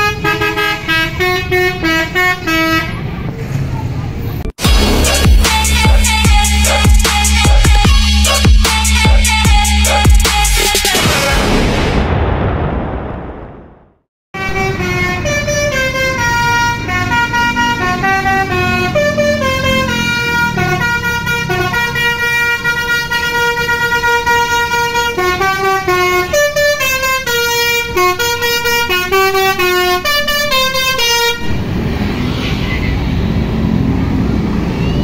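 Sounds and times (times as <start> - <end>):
bus horn playing a tune: 0.0 - 3.1, 14.4 - 31.6
engine and traffic rumble: 0.0 - 10.7, 14.4 - 35.0.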